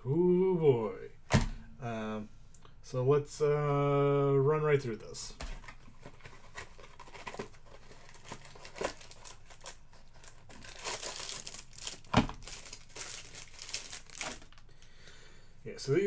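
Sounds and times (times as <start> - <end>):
card packaging crinkling and tearing: 5.5 - 14.7.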